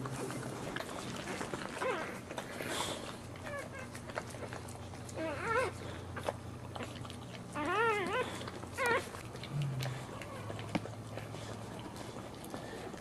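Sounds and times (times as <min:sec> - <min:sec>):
puppy squealing: 0:01.7 - 0:02.2, 0:05.1 - 0:05.8, 0:07.5 - 0:09.2.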